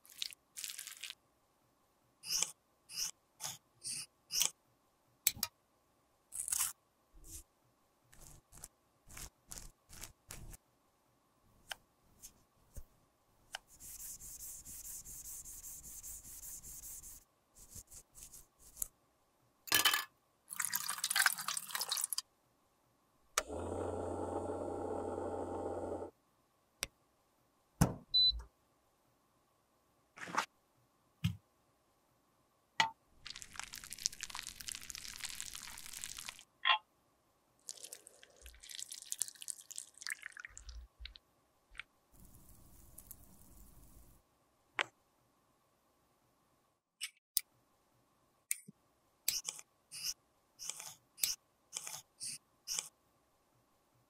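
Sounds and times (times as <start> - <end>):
melted lipstick pouring: 33.2 - 36.4, 37.6 - 41.2.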